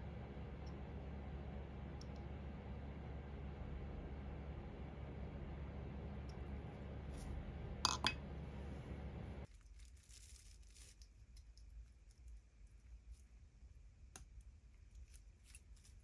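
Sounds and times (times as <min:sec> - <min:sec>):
steady low hum: 0:00.0 - 0:09.6
faint small clicks and scrapes: 0:09.4 - 0:13.4, 0:14.1 - 0:16.0.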